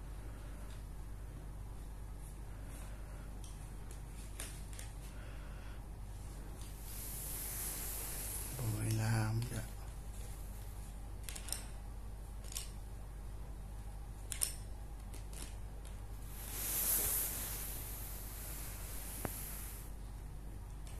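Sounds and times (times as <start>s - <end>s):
faint steady hum: 0.0s - 20.9s
pencils clicking and tapping: 11.2s - 11.7s, 12.3s - 12.8s, 14.2s - 16.0s.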